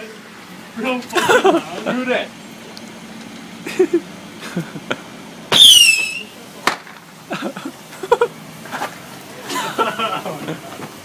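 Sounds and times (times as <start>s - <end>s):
whistling squeal falling in pitch: 5.5s - 6.4s
sharp crack: 5.5s - 7.1s.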